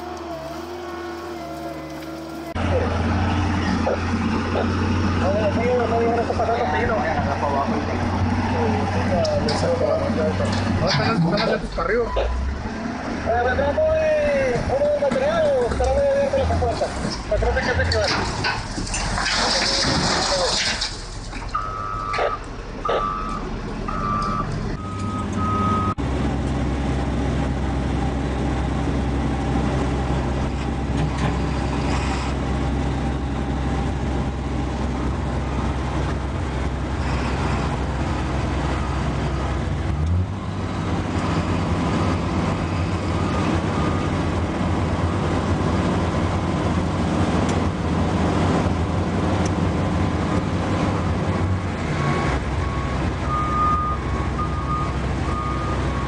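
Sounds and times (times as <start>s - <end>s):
dump truck diesel engine running: 0.0s - 56.0s
wheel loader diesel engine: 0.0s - 56.0s
reversing alarm beeping: 21.6s - 26.0s.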